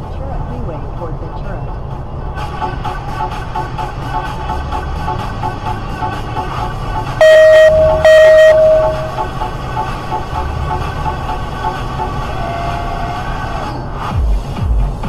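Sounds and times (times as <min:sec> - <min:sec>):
electronic music with steady beat: 0:02.4 - 0:12.4, 0:14.1 - 0:15.0
loud horn-like blasts: 0:07.2 - 0:10.5, 0:12.2 - 0:13.6.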